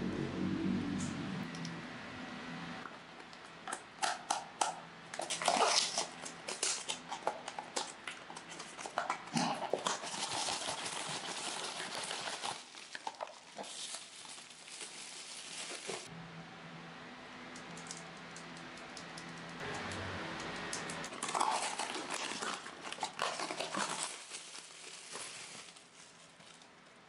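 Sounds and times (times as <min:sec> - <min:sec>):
foil bag tearing and crinkling: 0:05.2 - 0:16.1, 0:21.1 - 0:26.7
plastic wrap rustling: 0:05.2 - 0:16.1, 0:21.1 - 0:27.0.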